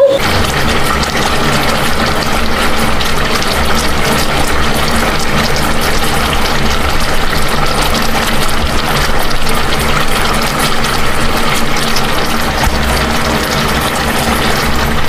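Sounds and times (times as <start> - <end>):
fish simmering in a covered pan: 0.0 - 15.0
low steady hum: 12.6 - 15.0.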